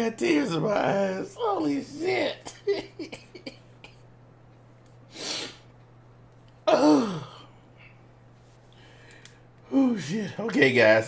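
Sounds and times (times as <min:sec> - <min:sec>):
man laughing helplessly: 0:02.5 - 0:04.0.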